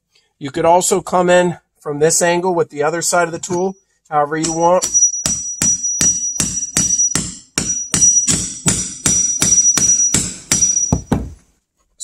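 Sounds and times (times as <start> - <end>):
hammer striking steel nail puller: 4.4 - 11.2.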